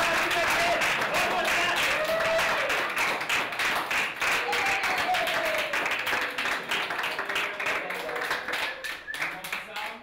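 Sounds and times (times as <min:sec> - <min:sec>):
voices cheering: 0:00.0 - 0:02.8, 0:04.3 - 0:06.4
crowd applauding: 0:00.0 - 0:10.0.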